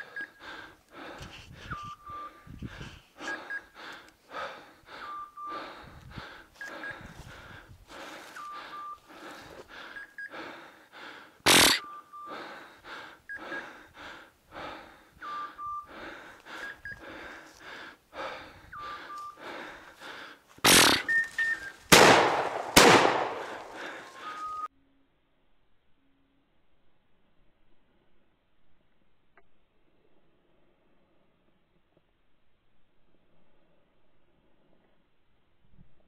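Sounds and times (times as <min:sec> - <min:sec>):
heavy breathing: 0:00.0 - 0:24.7
sharp crack: 0:11.5 - 0:11.8, 0:20.6 - 0:21.2, 0:21.9 - 0:23.8.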